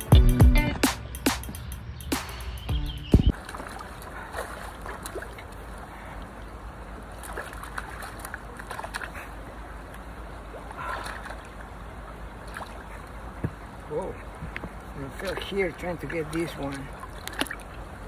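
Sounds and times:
water running over rocks: 3.3s - 18.0s
faint splashy ticks: 16.1s - 17.8s.

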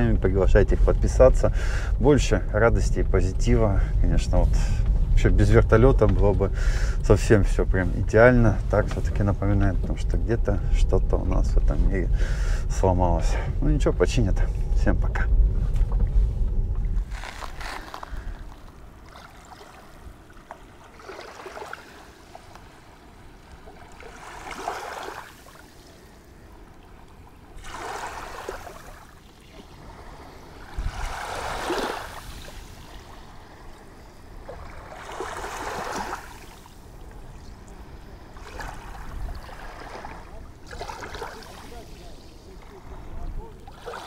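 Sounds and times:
small waves washing over shells: 17.0s - 44.0s.

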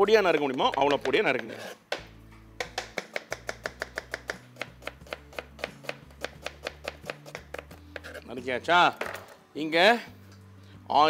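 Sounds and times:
knife chopping on plastic board: 0.1s - 8.2s.

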